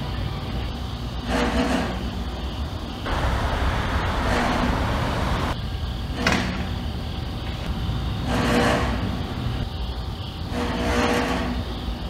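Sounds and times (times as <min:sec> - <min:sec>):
refrigeration units rumbling: 0:00.0 - 0:12.0
compressor hissing rush: 0:03.0 - 0:08.3.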